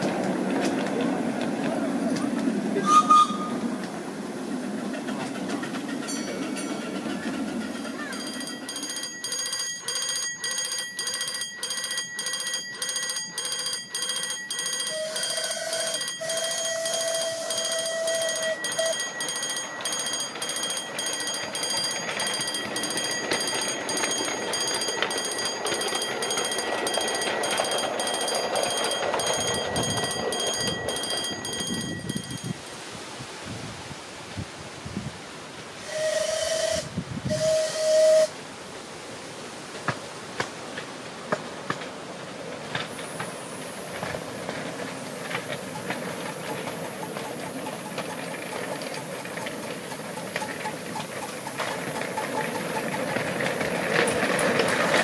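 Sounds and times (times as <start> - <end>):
level crossing alarm beeping: 8.1 - 32.6.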